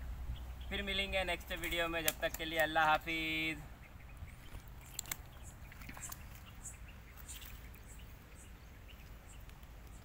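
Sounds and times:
low steady rumble: 0.0s - 1.5s.

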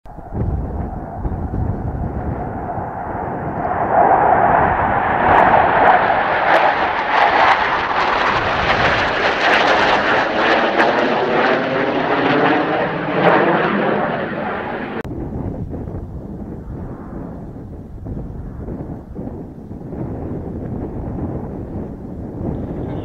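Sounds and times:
fighter jets passing overhead: 0.0s - 23.0s.

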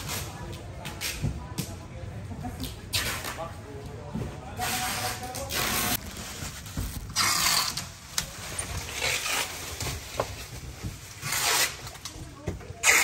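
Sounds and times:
bubble wrap rustling and crackling: 4.6s - 12.4s.

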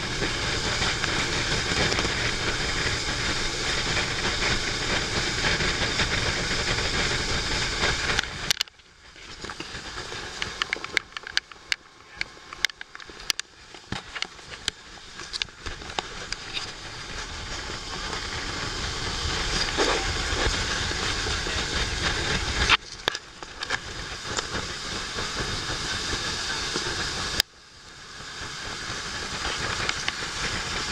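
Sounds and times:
water spray along boat hull: 0.0s - 11.4s, 13.1s - 30.9s
low rumble: 14.4s - 22.7s.

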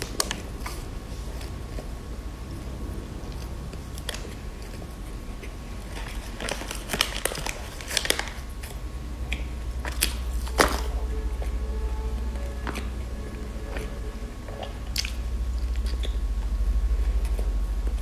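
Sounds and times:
steady low hum: 0.0s - 18.0s
plastic wrapper crackling: 5.9s - 10.9s.

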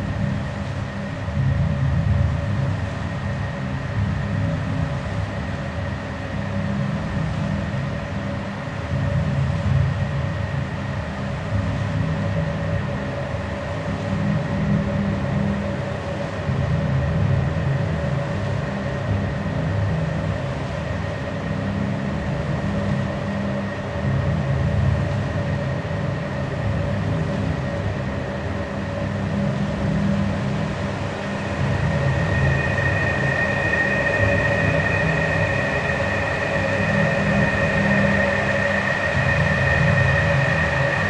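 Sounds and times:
low rumble: 29.8s - 41.0s
steady held tones: 30.2s - 41.0s
higher tone: 30.9s - 41.0s.

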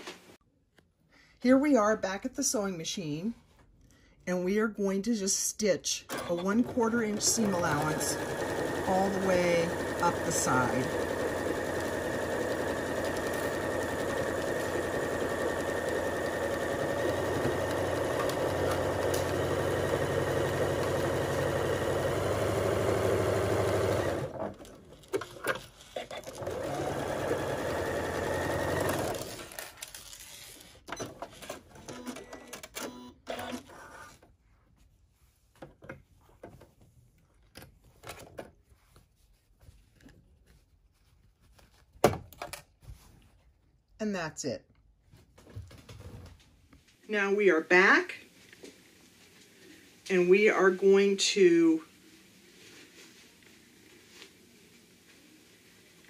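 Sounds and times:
sewing machine stitching: 6.0s - 30.4s.

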